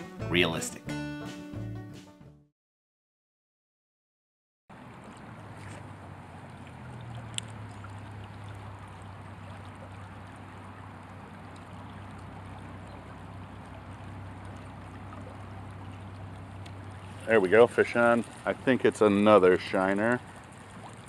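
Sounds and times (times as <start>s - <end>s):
creek water running: 4.7s - 21.0s.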